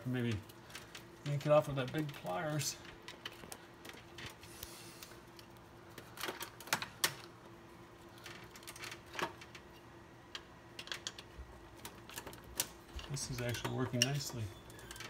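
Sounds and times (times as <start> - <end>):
faint steady hum: 0.0 - 15.0
tools clicking and scraping metal: 8.2 - 15.0.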